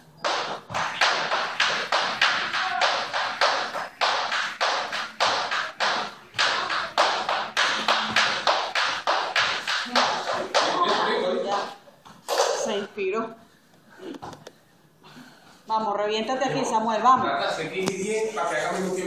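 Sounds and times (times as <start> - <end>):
jump rope slapping floor: 0.2 - 12.7.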